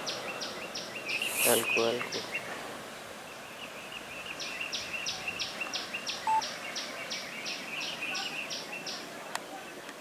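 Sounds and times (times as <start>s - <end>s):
faint outdoor hiss: 0.0s - 10.0s
rhythmic high-pitched chirping: 6.2s - 6.4s.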